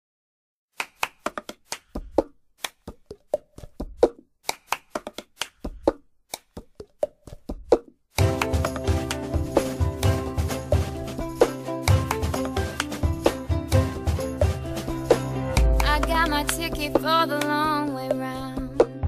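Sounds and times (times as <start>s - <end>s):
hand claps: 0.8s - 6.7s, 7.7s - 9.4s, 11.8s - 13.4s, 15.6s - 17.8s
sustained instrumental music: 8.2s - 19.0s.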